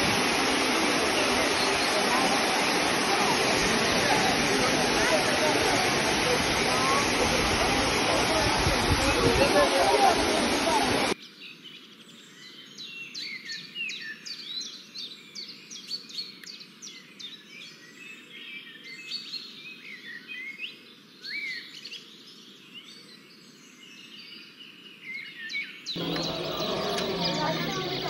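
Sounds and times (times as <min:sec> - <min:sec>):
small birds chirping: 0:25.9 - 0:28.0.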